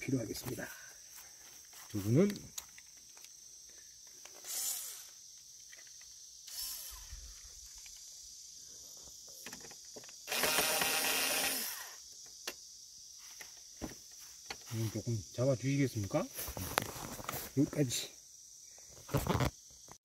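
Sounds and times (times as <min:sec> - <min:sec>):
cordless screwdriver running: 0:04.5 - 0:05.0, 0:10.3 - 0:12.0.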